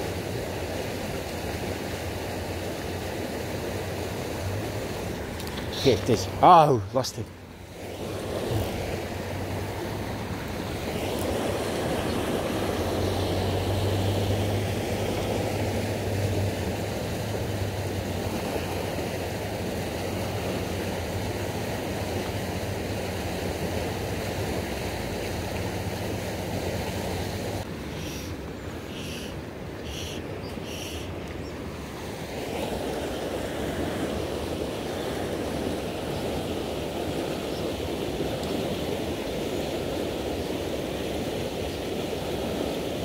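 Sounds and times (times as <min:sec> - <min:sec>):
river water rushing over weir: 0:00.0 - 0:43.0.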